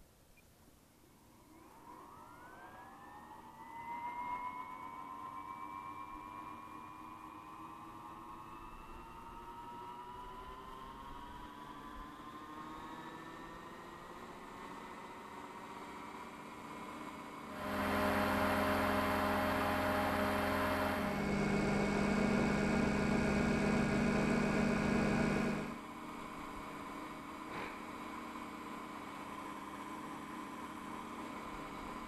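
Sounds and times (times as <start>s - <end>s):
rc helicopter motor whine: 4.3s - 27.1s.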